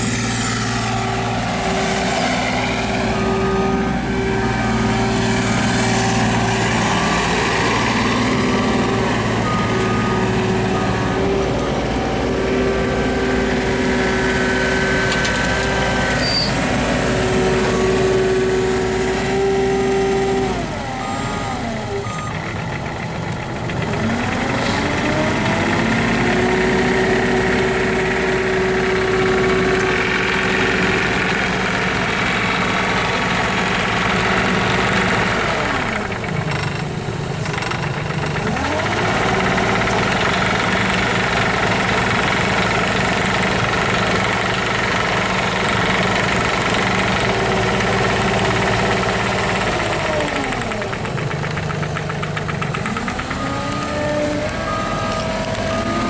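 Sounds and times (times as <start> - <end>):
excavator diesel engine revving: 0.0 - 56.0
whine: 52.6 - 56.0.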